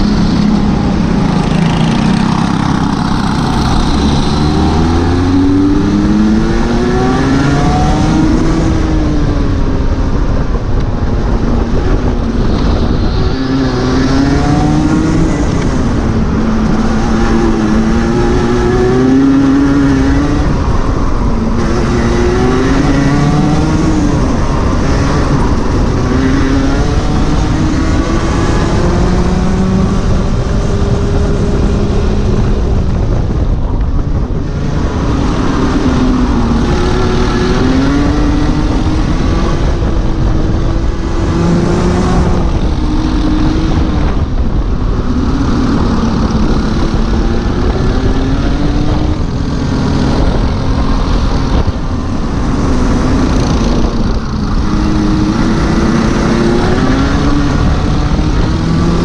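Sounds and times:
kart engine racing: 0.0 - 59.0.

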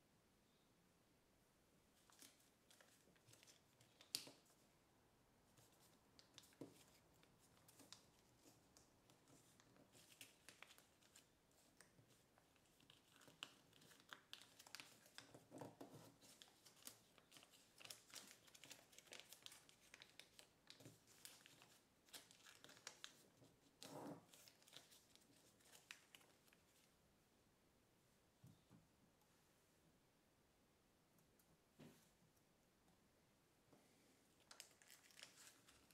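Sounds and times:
paper crinkling and crackling: 2.0 - 4.6, 5.6 - 26.9, 34.4 - 35.9
paper rustles: 5.6 - 26.9, 34.4 - 35.9.

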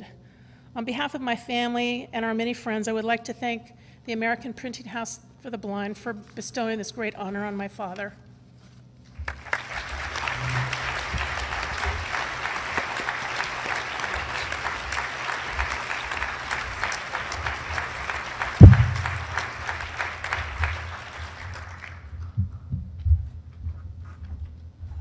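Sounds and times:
audience applauding: 9.2 - 22.2
loud low thump: 18.6 - 19.5.

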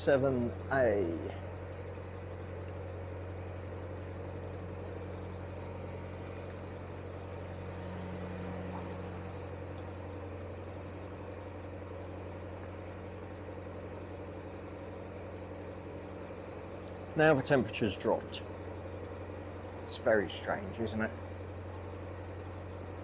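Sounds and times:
boat diesel engine running: 0.0 - 23.0.

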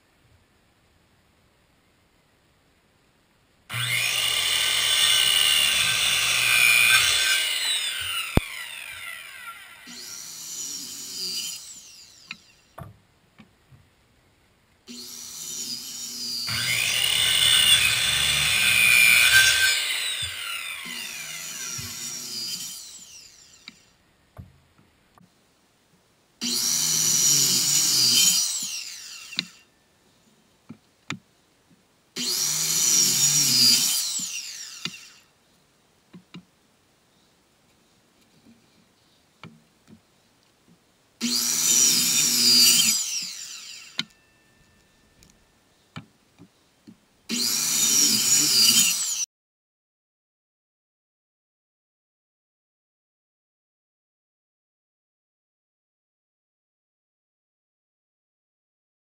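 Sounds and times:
circular saw cutting wood: 3.7 - 12.8, 14.9 - 24.0, 26.4 - 29.7, 32.2 - 35.3, 41.2 - 44.4, 47.3 - 49.3.

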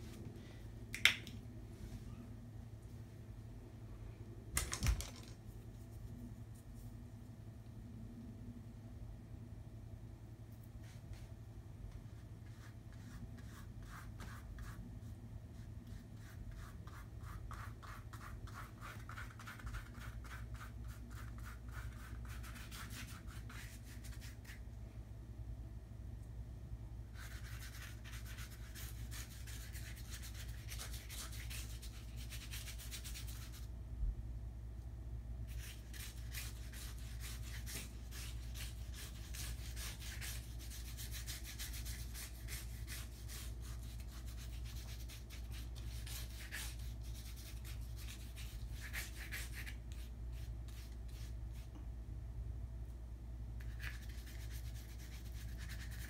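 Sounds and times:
steady low hum: 0.0 - 56.0
paintbrush scrubbing on canvas: 35.5 - 51.7.

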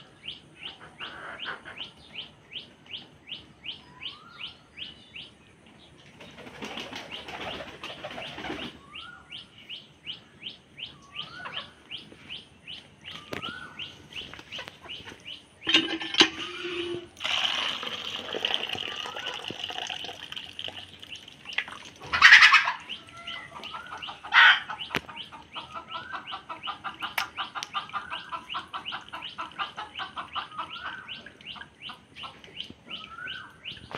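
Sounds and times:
small birds chirping: 0.0 - 15.9, 18.4 - 33.9
pigeon wings flapping: 6.3 - 8.7.

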